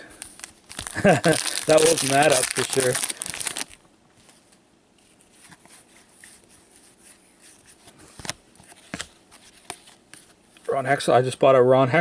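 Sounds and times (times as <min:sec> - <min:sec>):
foil wrapper crinkling: 0:00.1 - 0:03.8
trading cards rustling: 0:00.1 - 0:03.8.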